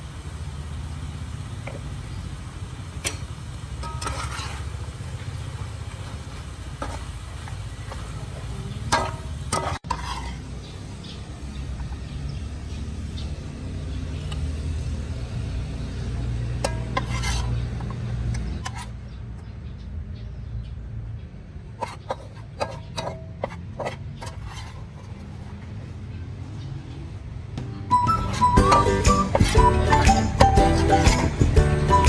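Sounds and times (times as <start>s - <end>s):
spatula scraping frying pan: 3.8s - 10.8s, 16.6s - 19.0s, 21.8s - 25.8s, 28.0s - 31.4s.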